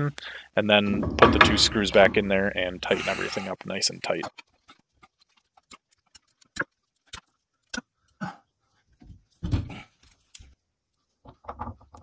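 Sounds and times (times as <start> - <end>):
dull knocks: 0.9 - 2.5.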